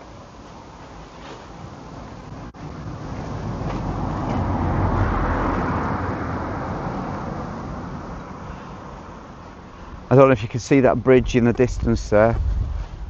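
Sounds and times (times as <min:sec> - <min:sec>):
car passing by: 0:02.3 - 0:10.1.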